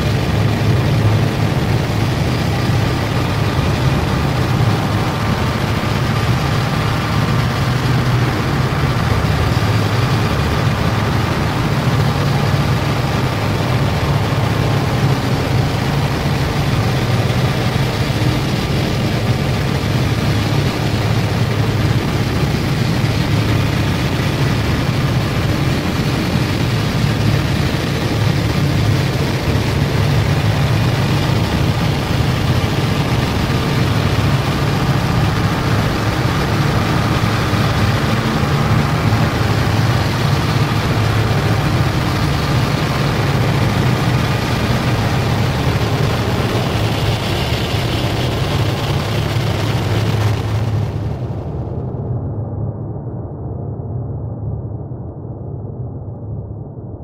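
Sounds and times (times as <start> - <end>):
heavy low rumble: 0.0 - 57.0
wall of static: 0.0 - 57.0.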